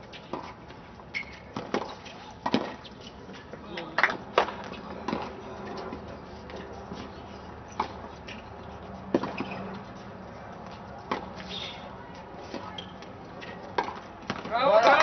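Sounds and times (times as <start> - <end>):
racket hitting tennis ball: 1.6 - 2.9, 4.0 - 7.1, 7.7 - 9.8, 10.7 - 11.8, 12.4 - 15.0.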